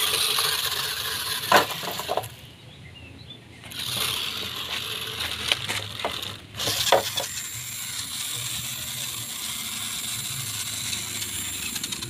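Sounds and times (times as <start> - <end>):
toy car electric motor whirring: 0.0 - 2.4, 3.7 - 12.0
sharp clicks from toy car: 3.6 - 12.0.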